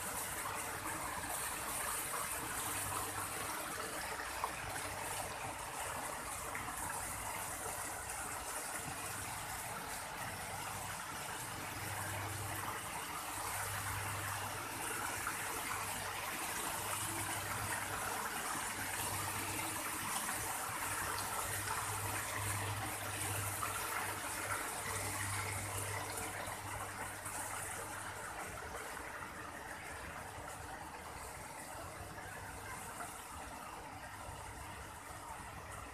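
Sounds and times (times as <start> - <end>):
fountains splashing into a pond: 0.0 - 35.9.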